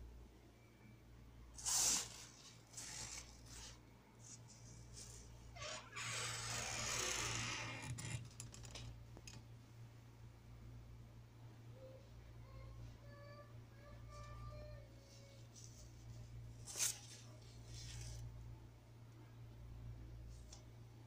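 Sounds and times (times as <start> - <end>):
fabric and plastic rustling: 1.6 - 5.3, 15.1 - 18.3.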